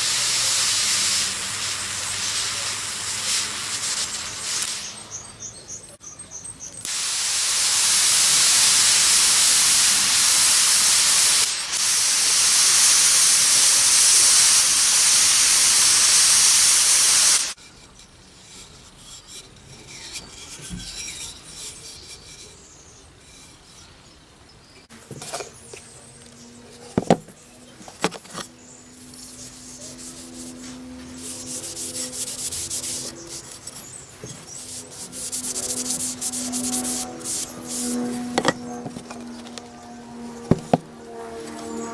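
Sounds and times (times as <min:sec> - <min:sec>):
gas torch hissing: 0:00.0 - 0:05.3, 0:06.8 - 0:17.6, 0:31.3 - 0:39.5, 0:40.4 - 0:40.8.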